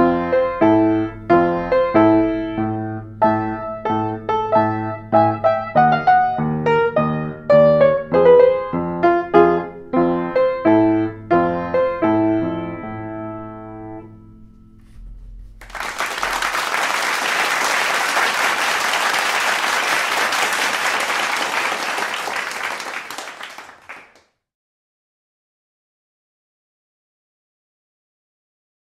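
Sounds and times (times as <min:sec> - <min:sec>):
upright piano playing: 0:00.0 - 0:14.8
audience applause: 0:15.6 - 0:24.2.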